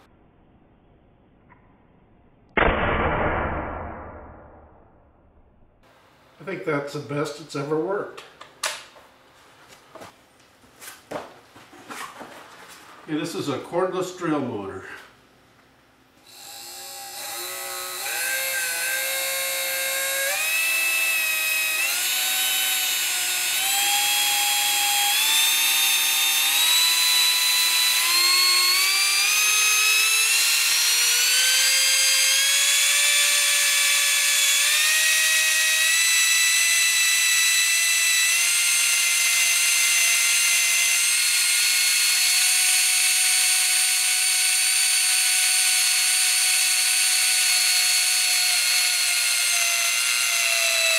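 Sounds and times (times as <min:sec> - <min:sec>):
drill motor whine: 0:16.2 - 0:50.9.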